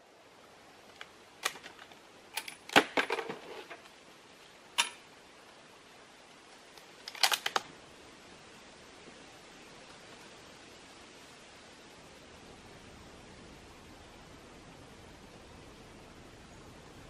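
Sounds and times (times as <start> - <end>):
rifle bolt clicking and clacking: 7.0 - 7.6.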